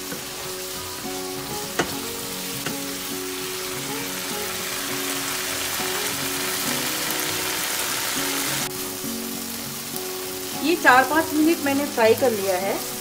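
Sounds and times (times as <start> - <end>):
background music: 0.0 - 13.0
masala sizzling in a frying pan: 0.0 - 13.0
wooden spoon tapping pan: 1.7 - 2.0.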